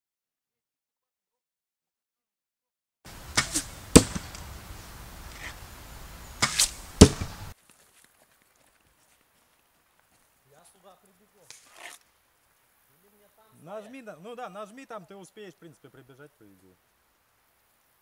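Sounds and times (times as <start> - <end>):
arrow striking target: 3.2 - 5.6, 6.4 - 7.5.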